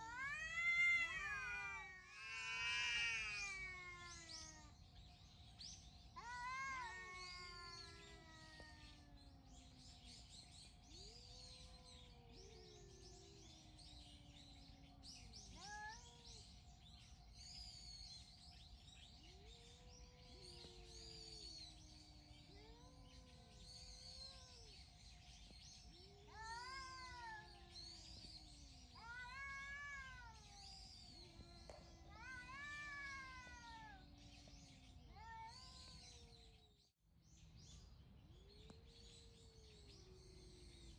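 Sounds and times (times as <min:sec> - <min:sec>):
cats yowling: 0:00.0 - 0:04.9, 0:06.1 - 0:09.9, 0:10.8 - 0:16.9, 0:19.2 - 0:36.7
faint bird chirps: 0:00.0 - 0:36.8.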